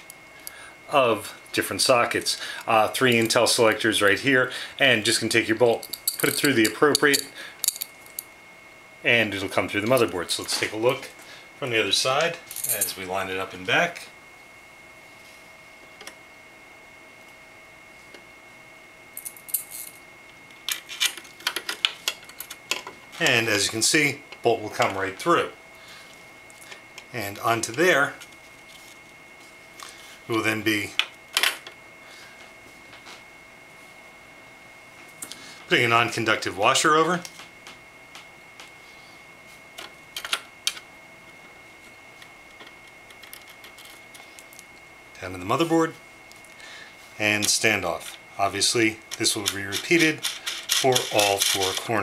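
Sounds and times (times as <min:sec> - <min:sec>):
faint high whine: 0:00.0 - 0:52.0
small metal parts clinking: 0:05.8 - 0:08.2, 0:12.5 - 0:12.9, 0:43.1 - 0:44.0, 0:49.1 - 0:51.9.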